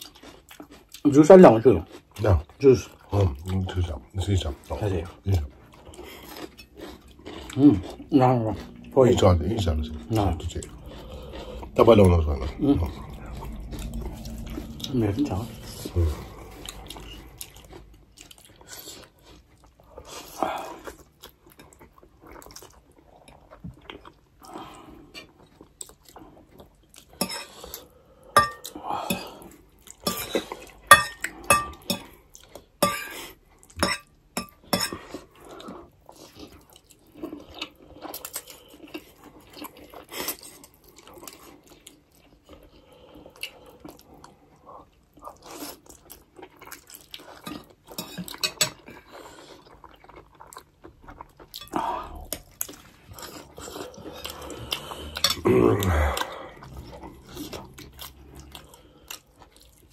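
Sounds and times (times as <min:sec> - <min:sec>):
slurping noodles: 0:06.0 - 0:20.9
cutlery clinking on plates: 0:28.4 - 0:29.2, 0:30.1 - 0:32.1, 0:33.8 - 0:35.1.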